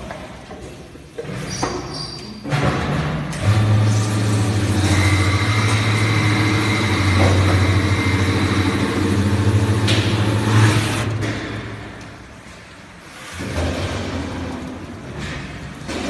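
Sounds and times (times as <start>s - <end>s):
brushing machine motor humming: 3.4s - 11.2s.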